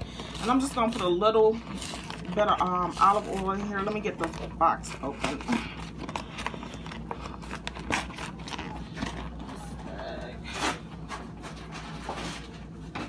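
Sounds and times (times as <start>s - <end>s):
cardboard tearing and scraping: 0.2s - 9.4s.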